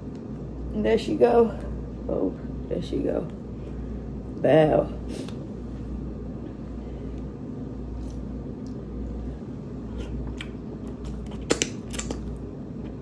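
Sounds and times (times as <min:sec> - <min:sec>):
steady low hum: 0:00.0 - 0:13.0
eating clicks and squishes: 0:10.0 - 0:13.0.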